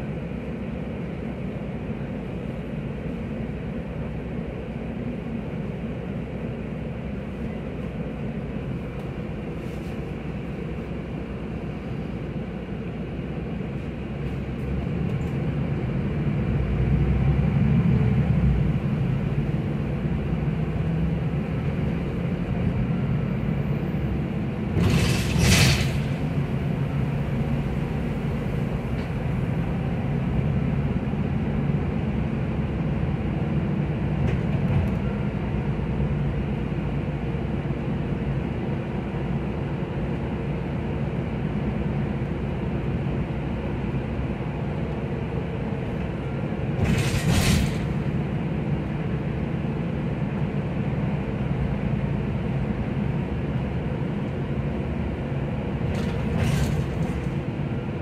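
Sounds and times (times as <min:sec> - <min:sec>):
bus engine rumbling: 0:00.0 - 0:58.0.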